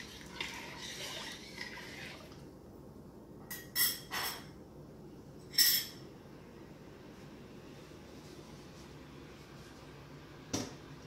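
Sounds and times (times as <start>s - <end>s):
utensil stirring rice in water: 0.0s - 2.4s.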